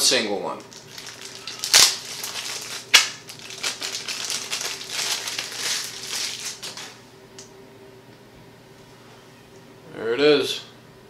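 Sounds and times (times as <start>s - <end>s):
plastic packaging crinkling: 0.6s - 7.0s.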